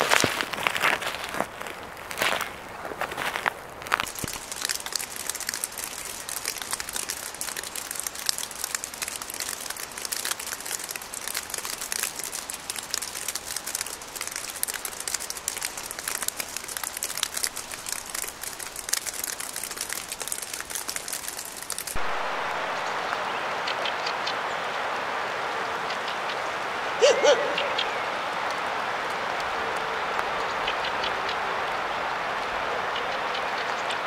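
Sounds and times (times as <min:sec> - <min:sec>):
snow pellets pattering on dry leaves: 0:00.0 - 0:26.4.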